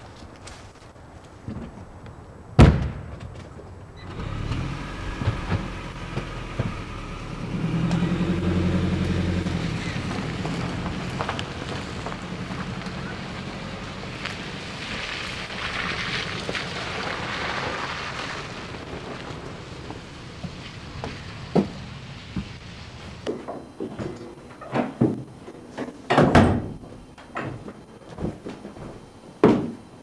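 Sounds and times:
car engine starting and running: 0:04.0 - 0:23.3.

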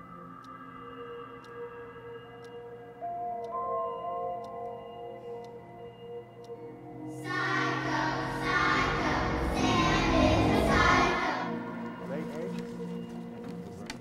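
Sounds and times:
choir-like voices: 0:06.4 - 0:13.0
sustained horror tones: 0:06.6 - 0:12.0.

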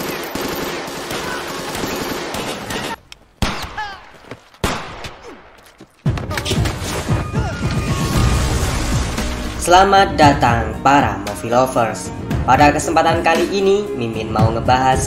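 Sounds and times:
automatic gunfire: 0:00.0 - 0:03.8
single rifle shots: 0:03.4 - 0:05.6.

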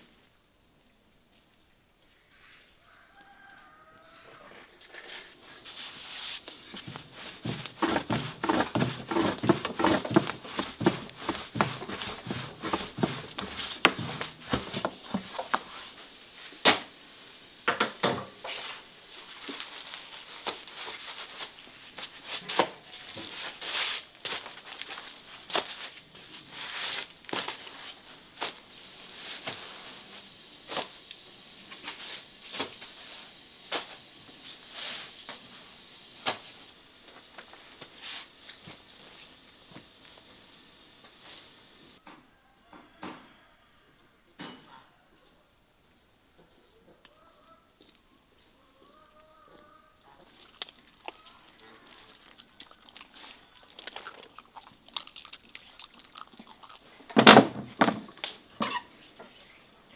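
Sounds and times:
crinkling handling noise: 0:04.8 - 0:16.6, 0:18.4 - 0:35.5, 0:50.0 - 0:59.9.

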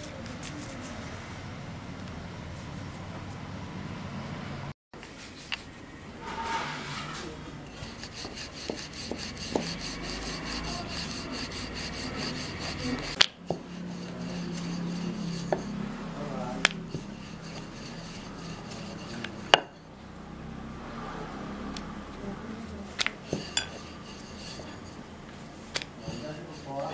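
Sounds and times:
rolling pin rubbing and scraping: 0:05.0 - 0:20.0, 0:23.0 - 0:26.9.

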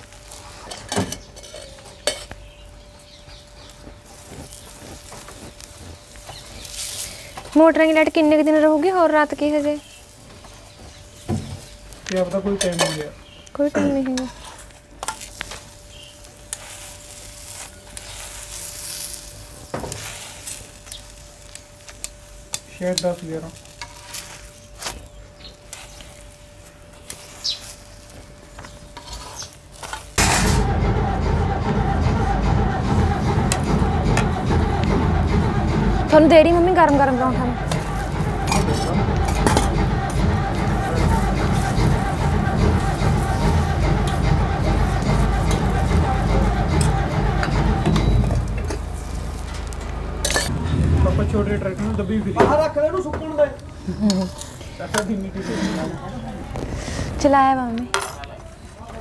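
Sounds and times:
food sizzling: 0:00.0 - 0:31.6, 0:32.9 - 0:57.9
spoon scraping on iron griddle: 0:00.1 - 0:02.6, 0:04.0 - 0:30.6, 0:54.1 - 0:57.0
metal spatula scraping griddle: 0:00.3 - 0:02.4, 0:12.2 - 0:13.2, 0:14.0 - 0:21.6, 0:22.8 - 0:25.1, 0:26.9 - 0:50.6, 0:54.0 - 0:56.0.

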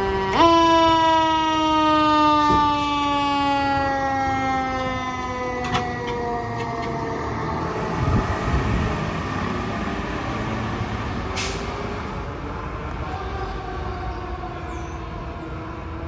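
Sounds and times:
fire engine siren falling: 0:00.0 - 0:12.3.

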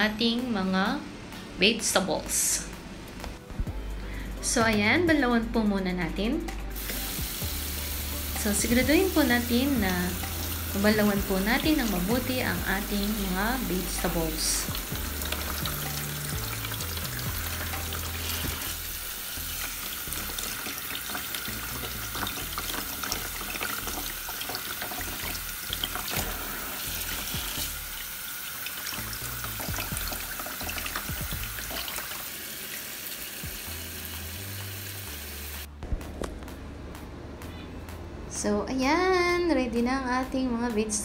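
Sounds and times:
background music with bass line: 0:02.6 - 0:20.6, 0:21.4 - 0:24.2, 0:25.0 - 0:28.0, 0:29.0 - 0:31.8, 0:33.4 - 0:41.0
tap water splashing over vegetables: 0:19.5 - 0:32.3.

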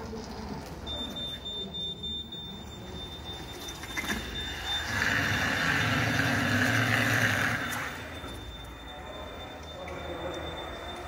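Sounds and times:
thin steady high tone: 0:00.6 - 0:11.0
electric forklift driving: 0:02.2 - 0:11.0.

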